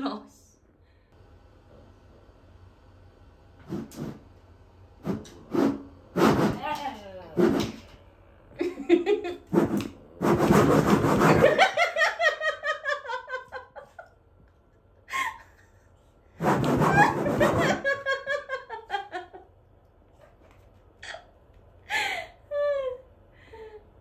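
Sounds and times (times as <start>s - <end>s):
woman laughing: 8.6s - 9.5s, 11.2s - 14.2s, 15.1s - 15.9s, 16.8s - 19.5s, 21.9s - 23.8s.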